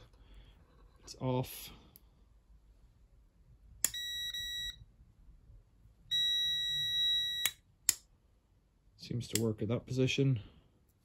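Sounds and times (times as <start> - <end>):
multimeter beeping: 3.8 - 4.8, 6.1 - 7.7.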